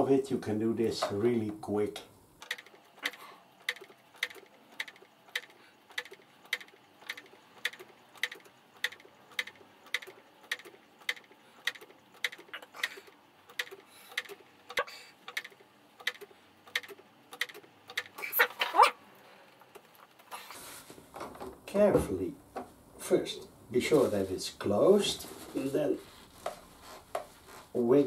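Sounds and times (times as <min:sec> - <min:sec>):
clock ticking: 0:02.4 - 0:18.2.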